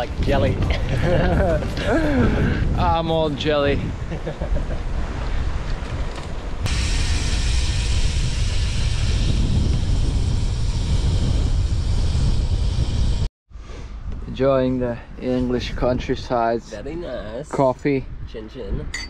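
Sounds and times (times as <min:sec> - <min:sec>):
wind rushing over microphone: 0:00.0 - 0:17.0, 0:17.7 - 0:19.0
deep rumble: 0:06.4 - 0:13.3.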